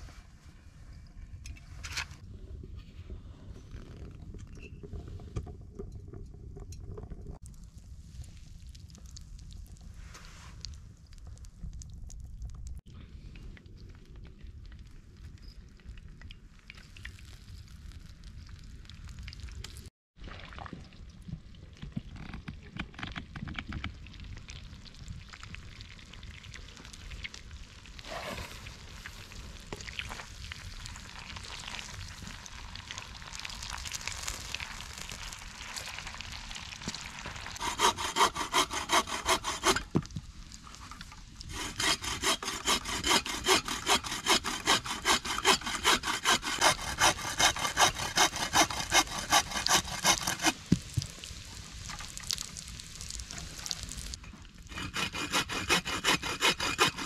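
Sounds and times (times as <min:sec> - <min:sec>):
hand saw cutting wood: 0:37.6 - 0:40.0, 0:41.5 - 0:50.6, 0:54.7 - 0:57.0.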